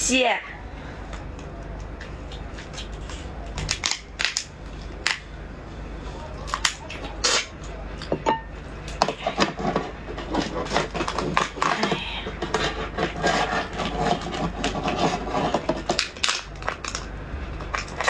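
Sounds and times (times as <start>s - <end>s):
crab shell cracking: 1.2s - 5.3s.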